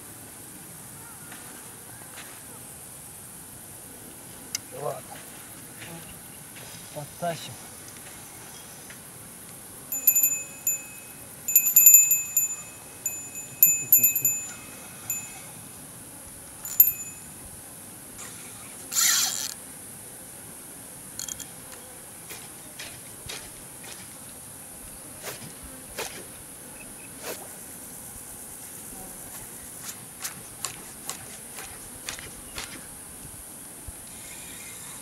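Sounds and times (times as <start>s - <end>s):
bite-alarm bell jingling: 9.9s - 15.6s, 16.6s - 17.4s.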